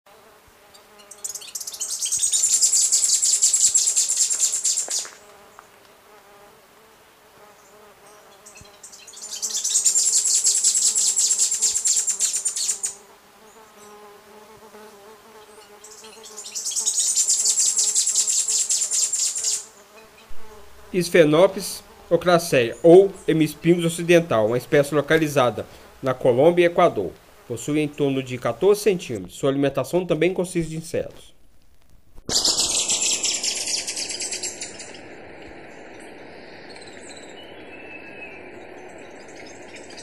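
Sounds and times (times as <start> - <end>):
bird singing high rapid trills: 0.8 - 5.2, 7.6 - 14.1, 15.4 - 26.0, 32.3 - 40.0.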